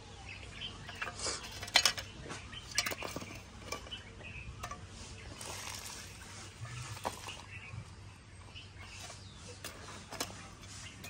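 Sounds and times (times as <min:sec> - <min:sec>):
hand shovel scraping soil: 0:00.9 - 0:04.0, 0:04.6 - 0:07.8, 0:08.8 - 0:11.0.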